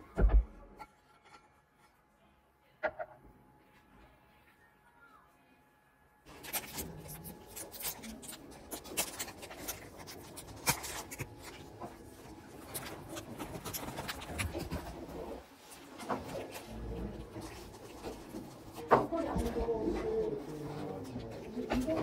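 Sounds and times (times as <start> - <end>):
plastic wrapper crinkling: 6.3 - 14.7.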